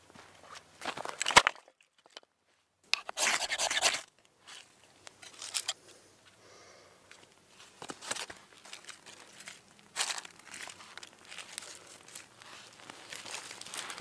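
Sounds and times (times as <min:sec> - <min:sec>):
tinder crinkling and crackling: 0:03.1 - 0:06.0, 0:07.1 - 0:14.0.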